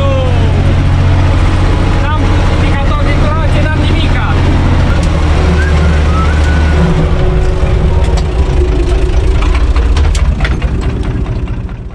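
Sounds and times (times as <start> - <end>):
tractor diesel engine running: 0.0 - 11.9
sharp clicks and rattles: 6.4 - 11.9.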